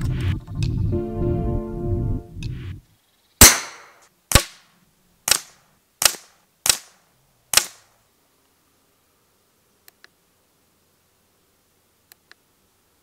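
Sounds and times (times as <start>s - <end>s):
air rifle shots: 3.4s - 4.6s, 5.3s - 7.8s.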